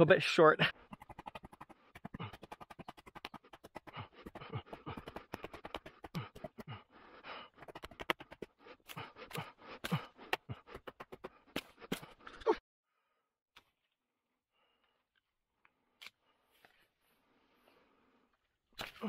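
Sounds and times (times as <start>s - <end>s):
blade chopping wood: 1.0s - 6.8s
person panting: 1.6s - 12.5s.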